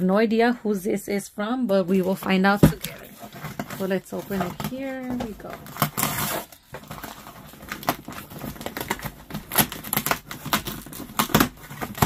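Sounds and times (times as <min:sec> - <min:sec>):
fingernails scratching packing tape: 0:05.6 - 0:12.0.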